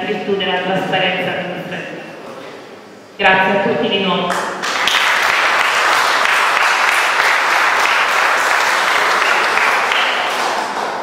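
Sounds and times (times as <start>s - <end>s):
audience applauding: 4.3s - 11.0s.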